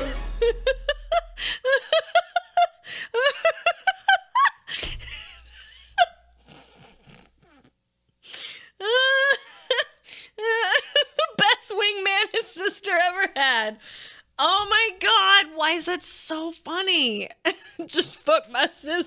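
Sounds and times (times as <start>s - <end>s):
woman laughing: 0.0s - 7.3s, 8.8s - 11.8s
breathless gasps: 8.2s - 8.8s, 13.8s - 14.3s.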